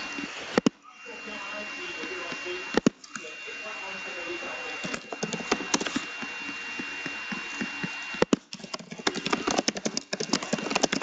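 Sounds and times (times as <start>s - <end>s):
faint high whine: 0.0s - 11.0s
laptop keyboard typing: 4.8s - 11.0s.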